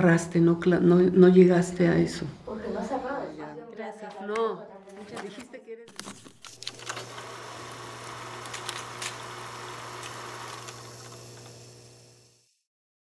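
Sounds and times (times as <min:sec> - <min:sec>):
old film crackle: 0:05.9 - 0:12.4.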